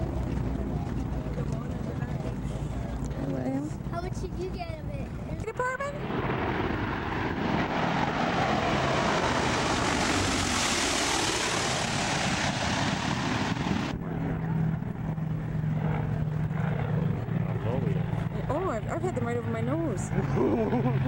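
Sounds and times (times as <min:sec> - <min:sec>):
propeller plane flying overhead: 0:00.0 - 0:21.0
low drone: 0:05.7 - 0:21.0.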